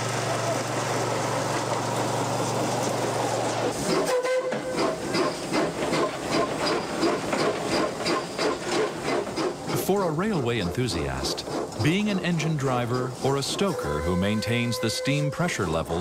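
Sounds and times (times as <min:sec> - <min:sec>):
rail trolley humming: 0:00.0 - 0:16.0
steam locomotive exhaust chuffs: 0:00.0 - 0:16.0
steam locomotive whistle: 0:03.9 - 0:04.9, 0:13.6 - 0:15.8.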